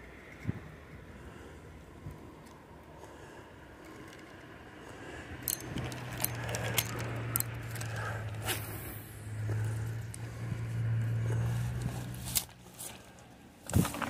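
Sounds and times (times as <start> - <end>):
clicks and handling noises: 3.8 - 4.5, 5.4 - 8.7, 11.4 - 14.0.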